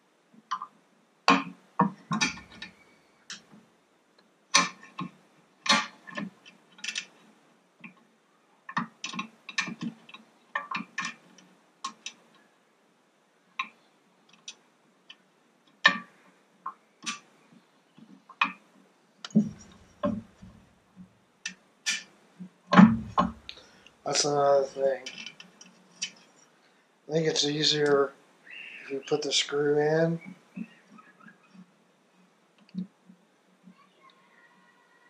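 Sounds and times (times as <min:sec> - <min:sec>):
tools clicking and knocking on engine: 0:01.3 - 0:03.5, 0:19.2 - 0:20.6.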